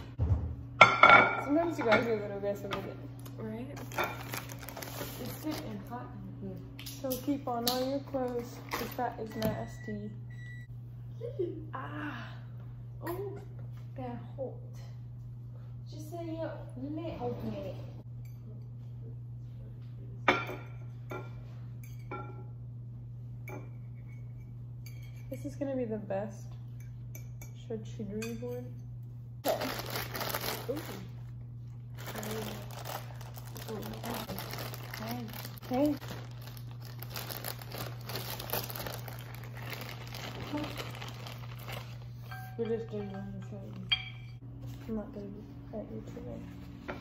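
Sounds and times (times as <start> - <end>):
plastic snack bag crinkling: 3.8 - 5.9, 29.4 - 31.3, 31.9 - 42.2.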